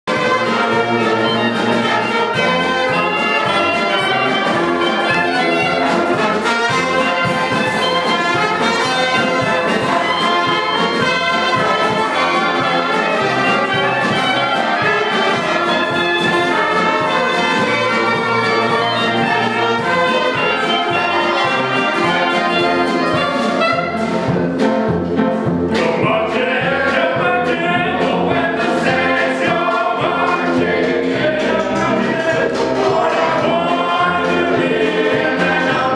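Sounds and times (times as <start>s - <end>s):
jazz band playing: 0.0s - 35.9s
players singing together: 0.1s - 24.2s, 25.7s - 35.9s.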